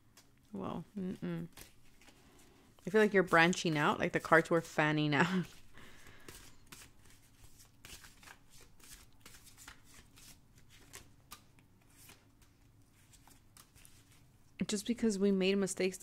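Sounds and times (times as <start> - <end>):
cards being shuffled: 1.4 - 4.7, 5.4 - 14.3.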